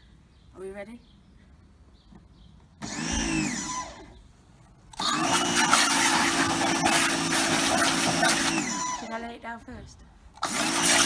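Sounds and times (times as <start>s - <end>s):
pressure washer motor: 2.8s - 4.1s, 4.9s - 9.2s, 10.4s - 11.0s
water jet hissing: 5.2s - 9.0s.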